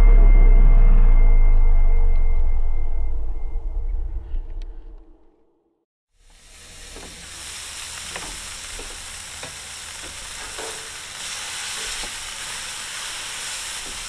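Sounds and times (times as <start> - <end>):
burger patties sizzling on grill: 6.2 - 14.0.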